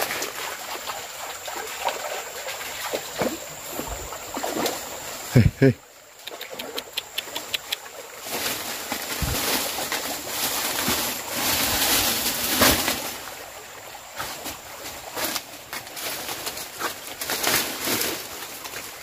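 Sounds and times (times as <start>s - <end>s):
small clicks and snaps: 6.2s - 7.9s
leaves and stems rustling: 7.0s - 19.0s.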